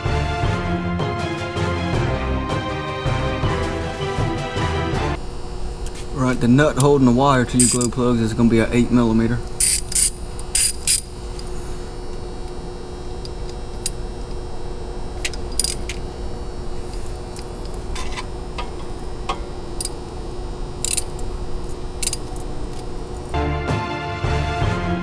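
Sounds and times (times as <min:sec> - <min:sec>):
steady low hum: 0:03.0 - 0:23.7
hand tools clinking on metal: 0:07.5 - 0:08.0.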